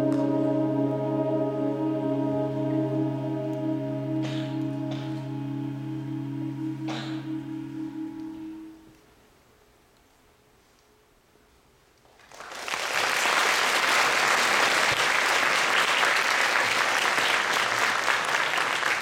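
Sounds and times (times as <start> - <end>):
audience applause: 12.2 - 19.0.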